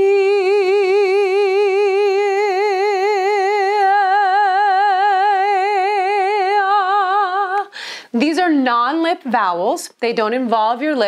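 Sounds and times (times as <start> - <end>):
woman singing sustained note: 0.0 - 7.7.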